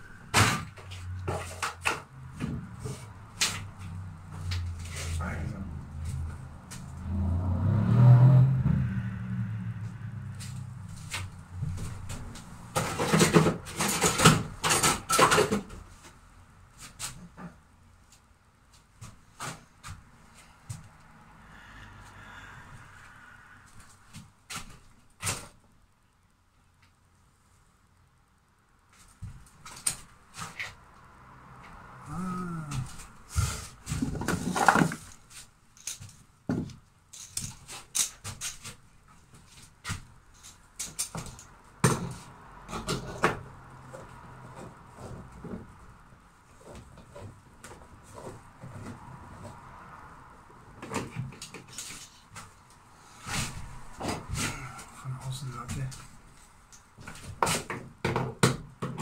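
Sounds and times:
rustling and scraping: 0:00.0 - 0:08.0, 0:08.8 - 0:21.0, 0:31.6 - 0:50.0, 0:50.7 - 0:58.0
low engine-like rumble: 0:02.0 - 0:12.8, 0:20.2 - 0:24.4.

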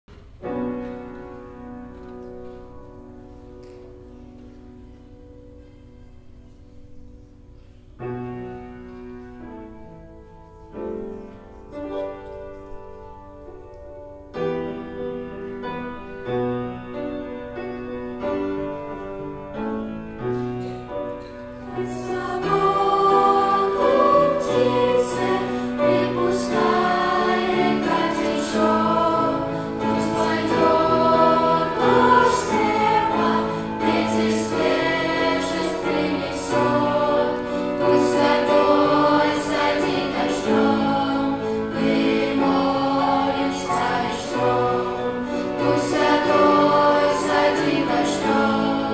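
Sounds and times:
piano: 0:00.0 - 0:48.9
choir singing worship song: 0:20.6 - 0:48.9.

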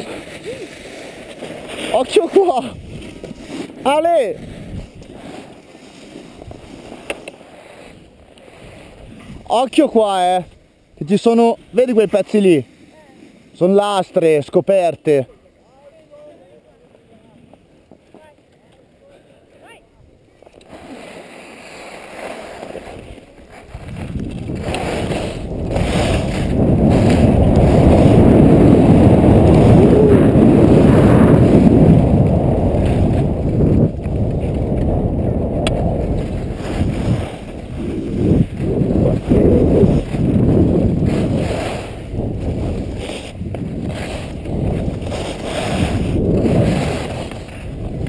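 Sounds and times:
skis scraping on icy snow: 0:00.0 - 0:48.0
wind rushing over microphone: 0:01.7 - 0:05.4, 0:22.8 - 0:48.0.

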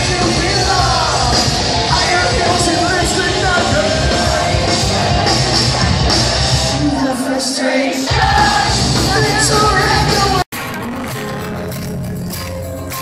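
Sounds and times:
live rock band playing: 0:00.0 - 0:07.1, 0:08.1 - 0:13.0.

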